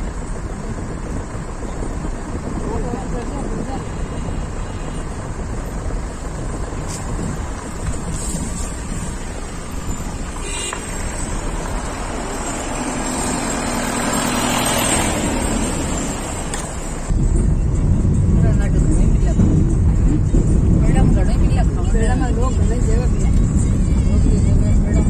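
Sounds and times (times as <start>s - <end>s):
road vehicle rumble: 0.0s - 25.0s.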